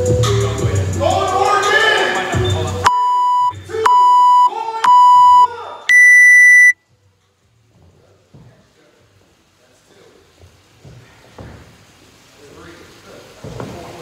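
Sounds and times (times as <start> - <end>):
music: 0.0 - 3.8
timer beeps: 2.8 - 6.8
long high beep: 2.9 - 6.8.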